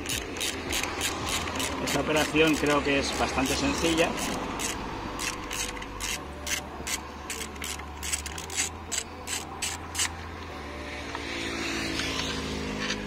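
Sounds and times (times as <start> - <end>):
hand ratchet clicking: 0.0 - 10.2.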